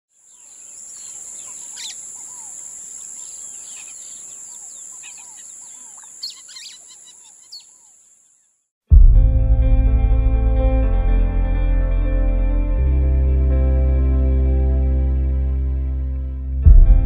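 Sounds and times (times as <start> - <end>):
birds chirping and singing: 0.1 - 8.5.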